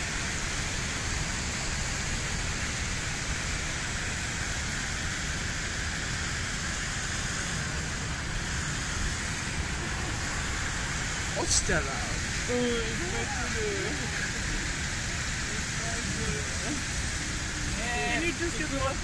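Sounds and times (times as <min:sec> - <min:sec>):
river rushing over rocks: 0:00.0 - 0:19.0.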